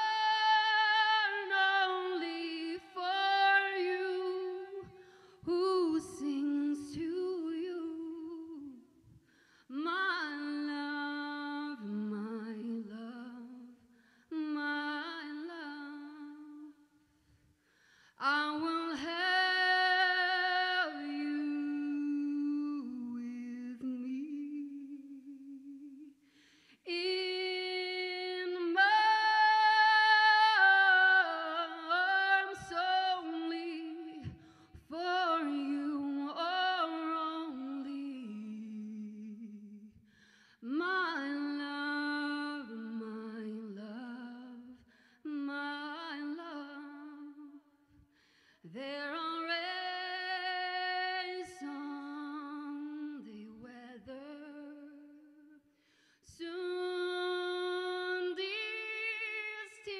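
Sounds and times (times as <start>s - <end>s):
woman singing a cappella: 0.0s - 59.9s.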